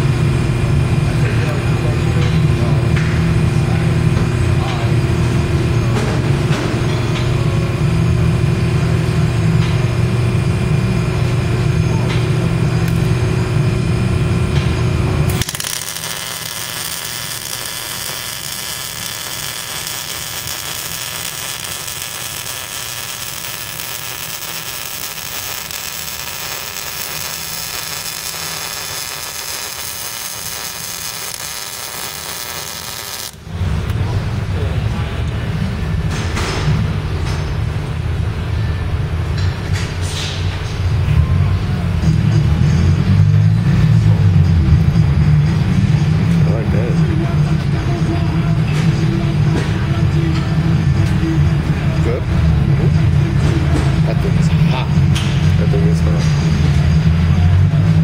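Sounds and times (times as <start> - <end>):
steady low hum: 0.0 - 58.0
welding arc crackling and hissing: 15.1 - 33.6.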